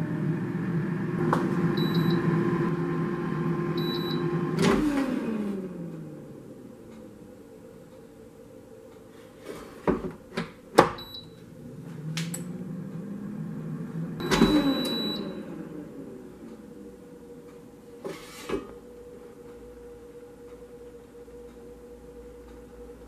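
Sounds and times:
drawer sliding scrape: 0:09.2 - 0:10.2, 0:18.0 - 0:18.8.

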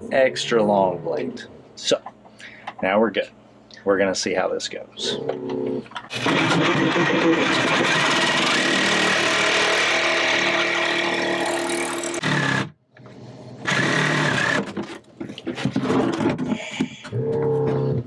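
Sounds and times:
reciprocating saw cutting fiberglass: 0:06.1 - 0:12.7.

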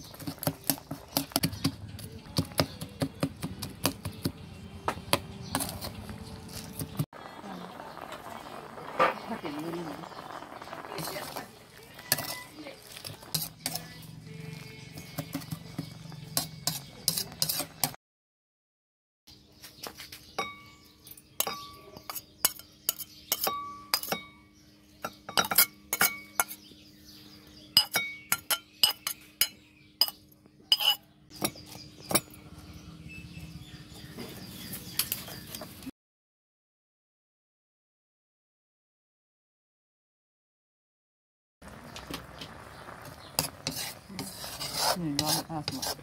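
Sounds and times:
spoon clinking on pot and bowls: 0:11.3 - 0:14.0, 0:15.0 - 0:18.0, 0:20.4 - 0:26.6, 0:27.8 - 0:32.4.

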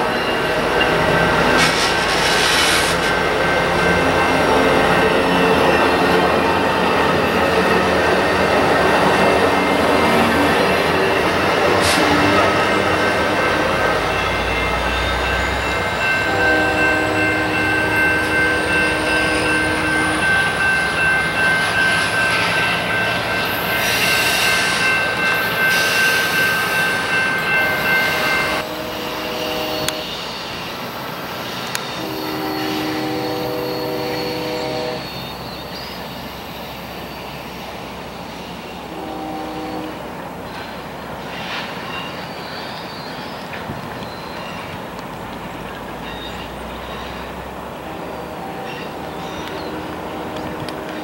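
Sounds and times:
high steady train squeal: 0:00.0 - 0:51.0
passenger train running past: 0:00.0 - 0:51.0
locomotive air horn blasts: 0:16.2 - 0:20.3, 0:28.4 - 0:30.2, 0:32.0 - 0:35.1, 0:38.9 - 0:40.0, 0:49.4 - 0:51.0.

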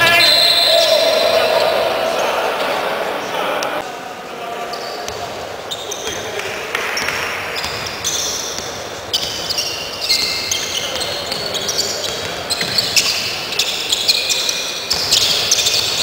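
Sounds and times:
murmur of voices: 0:00.0 - 0:07.5
sneakers squeaking on hardwood: 0:07.0 - 0:16.0.

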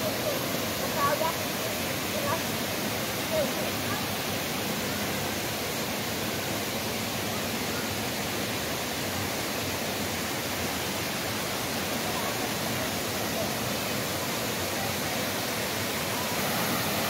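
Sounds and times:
water spilling over rocks: 0:15.6 - 0:17.0.

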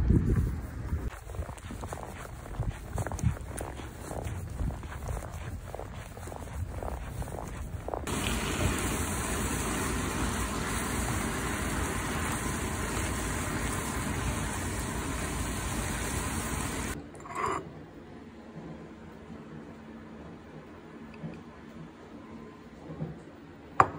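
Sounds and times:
meat sizzling in a frying pan: 0:08.1 - 0:17.0.

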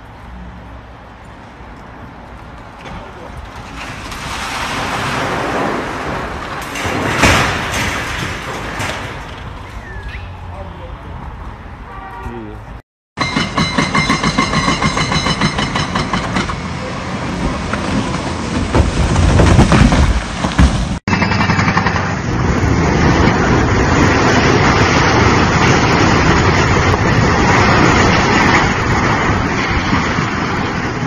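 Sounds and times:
building collapsing rumble: 0:02.9 - 0:10.0, 0:16.6 - 0:21.0, 0:21.8 - 0:31.0.

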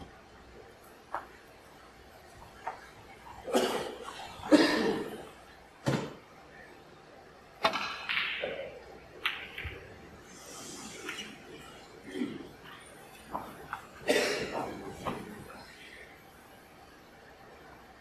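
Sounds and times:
snooker balls clicking: 0:07.6 - 0:10.4.

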